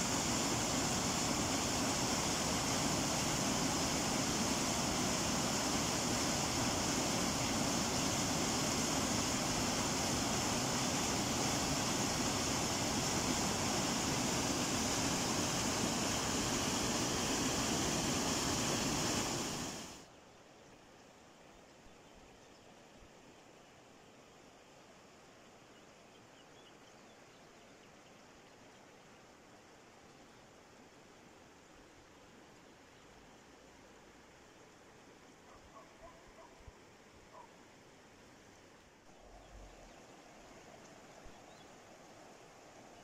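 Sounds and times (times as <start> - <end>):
waterfall pouring into river: 0.0 - 20.0.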